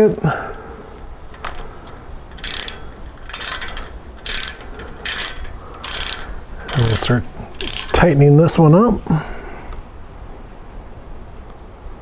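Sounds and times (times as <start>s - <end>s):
ratchet wrench clicking: 2.3s - 8.2s.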